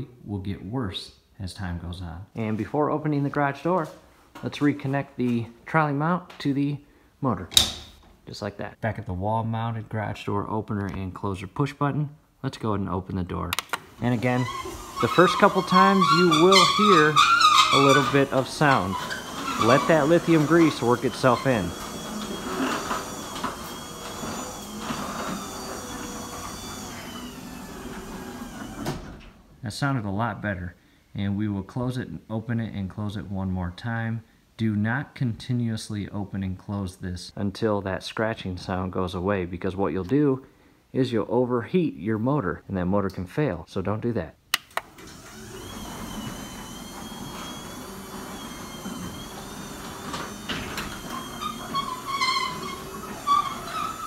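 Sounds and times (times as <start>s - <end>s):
garage door opener motor whining: 13.8s - 29.4s, 44.8s - 54.0s
garage door clunk: 44.8s - 54.0s.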